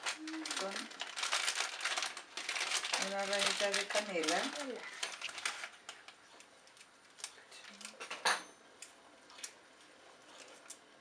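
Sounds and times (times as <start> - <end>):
plastic packet crinkling: 0.0 - 8.1.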